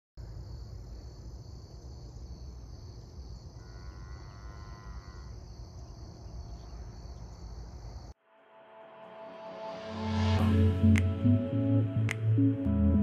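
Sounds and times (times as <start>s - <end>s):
insects trilling: 0.2s - 8.2s
faint drawn-out call: 3.6s - 5.4s.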